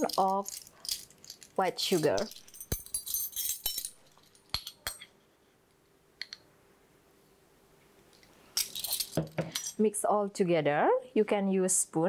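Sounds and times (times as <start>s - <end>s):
metal measuring spoons jangling: 0.0s - 5.1s, 8.6s - 9.8s.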